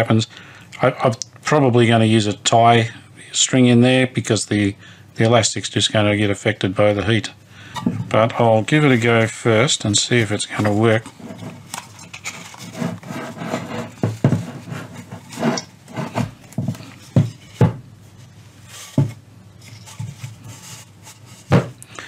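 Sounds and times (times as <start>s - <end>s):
cloth cover rustling and rubbing: 8.6s - 21.8s.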